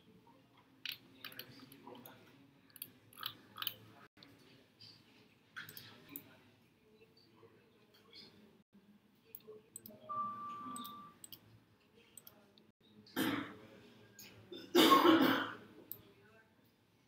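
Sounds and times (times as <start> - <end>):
computer mouse clicks: 2.8 - 3.8
steady beep: 9.9 - 11.3.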